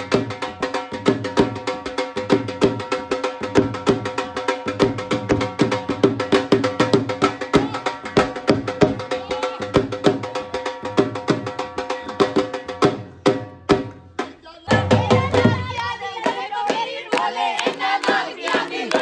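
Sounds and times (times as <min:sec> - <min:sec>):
drum beaten with sticks: 0:00.0 - 0:19.0
women singing together: 0:14.4 - 0:19.0
hand clapping: 0:15.7 - 0:19.0.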